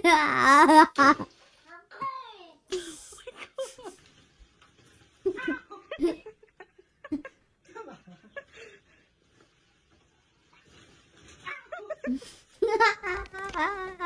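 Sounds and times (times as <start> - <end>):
people laughing: 5.5 - 9.1, 11.7 - 14.0.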